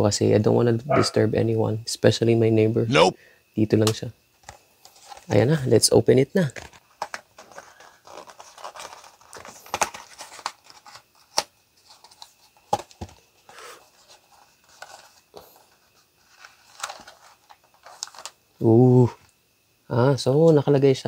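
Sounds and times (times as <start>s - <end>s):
cardboard rustling and tearing: 7.4s - 11.3s.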